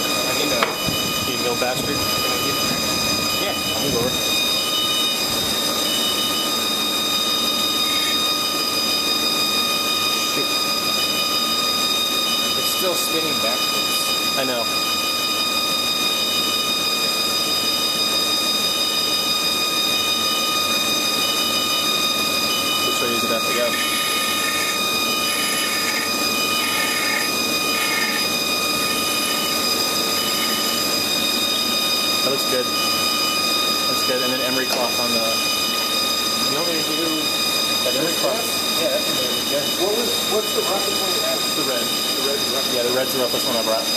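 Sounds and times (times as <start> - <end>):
lathe spindle high whine: 0.0 - 43.9
abrasive pad scrubbing metal: 22.6 - 37.9.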